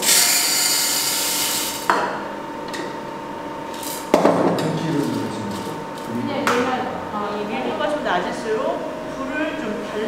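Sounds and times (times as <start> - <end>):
coffee roaster humming: 0.0 - 10.0.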